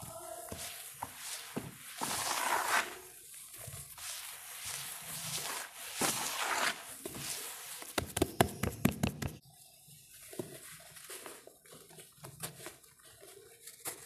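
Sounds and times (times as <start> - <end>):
hands crunching sand-cement mix: 0.4 - 8.7
soft scattered crackles: 9.4 - 14.0.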